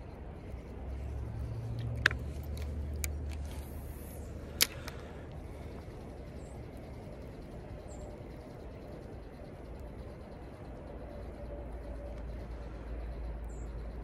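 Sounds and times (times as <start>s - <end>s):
light reel clicks: 0.0s - 14.0s.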